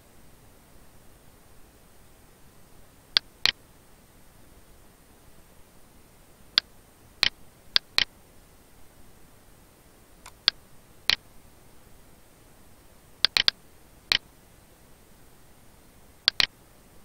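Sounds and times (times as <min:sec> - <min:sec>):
faint room hiss: 0:00.0 - 0:17.0
mouse button clicks: 0:10.2 - 0:11.2, 0:13.2 - 0:14.2, 0:16.3 - 0:16.5.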